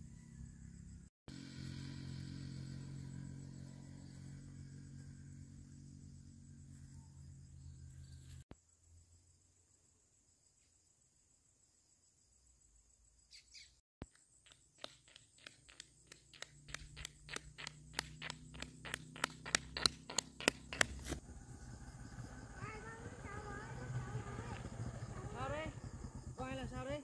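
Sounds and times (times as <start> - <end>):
motorbike engine humming: 0.0 - 8.4, 15.5 - 27.0
footsteps in sandals on concrete: 14.0 - 21.2.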